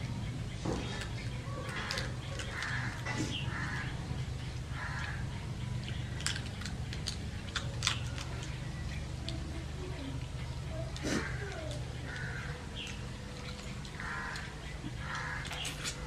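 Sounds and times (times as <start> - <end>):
bird calls: 0.0 - 16.0
steady low hum: 0.0 - 16.0
person chewing: 5.8 - 9.4, 10.2 - 16.0.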